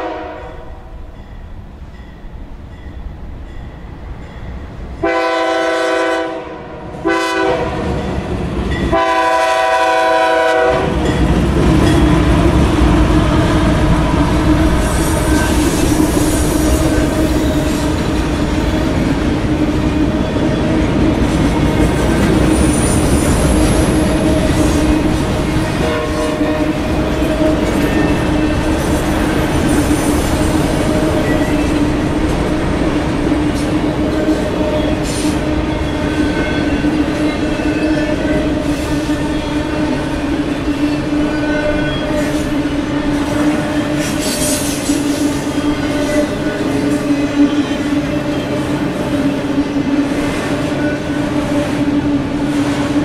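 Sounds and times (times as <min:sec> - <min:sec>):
train horn blasts: 0:00.0 - 0:01.1, 0:05.0 - 0:08.0, 0:08.9 - 0:11.2, 0:23.6 - 0:28.8, 0:34.0 - 0:48.6, 0:50.5 - 0:52.3
rail cars rolling: 0:00.0 - 0:53.0.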